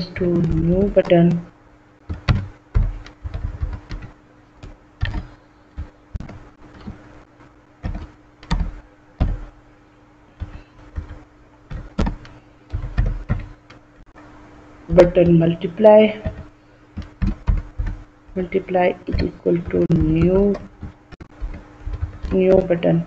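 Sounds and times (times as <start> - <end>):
faint steady hum: 0.0 - 23.0
keyboard typing: 2.1 - 7.0, 7.8 - 9.6, 10.4 - 13.8, 14.9 - 23.0.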